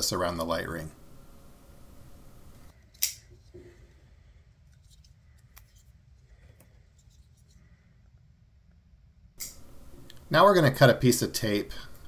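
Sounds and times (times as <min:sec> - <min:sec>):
sharp click: 0:09.4 - 0:10.2.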